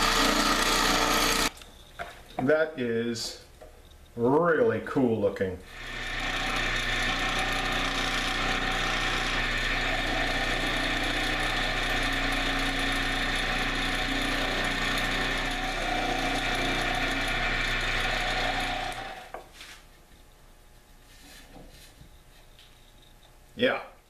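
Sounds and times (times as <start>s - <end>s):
lathe motor humming: 0.0s - 1.5s, 5.7s - 19.4s.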